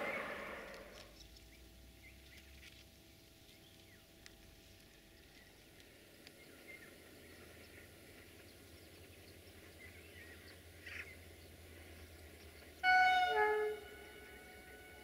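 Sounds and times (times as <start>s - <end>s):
distant locomotive horn blast: 0.0s - 0.9s, 12.7s - 15.0s.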